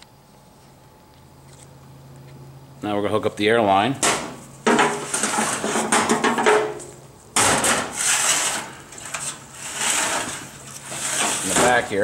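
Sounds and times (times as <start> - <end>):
loud scraping: 4.7 - 6.1, 7.4 - 12.0.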